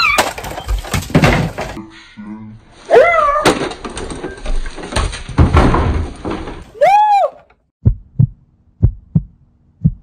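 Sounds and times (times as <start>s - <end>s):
knocks and thuds of handling: 0.2s - 1.8s, 3.4s - 6.7s.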